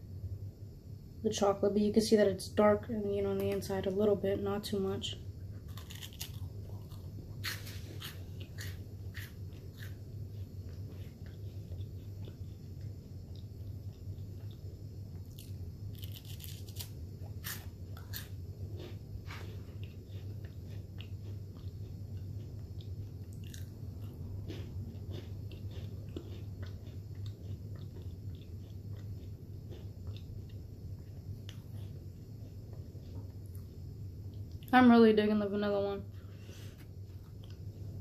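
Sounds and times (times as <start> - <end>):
steady low hum: 0.0 - 38.0
wafer cookie crunching: 5.5 - 33.7.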